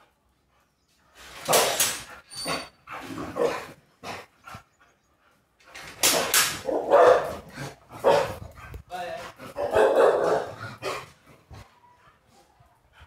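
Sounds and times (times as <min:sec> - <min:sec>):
puppy barking: 0:06.7 - 0:07.4, 0:08.0 - 0:08.3, 0:09.6 - 0:10.6.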